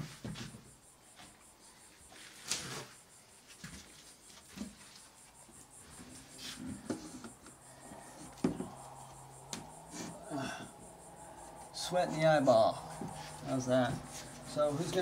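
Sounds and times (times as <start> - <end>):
board scraping: 6.0 - 7.4
board knocking against wooden studs: 8.4 - 8.8.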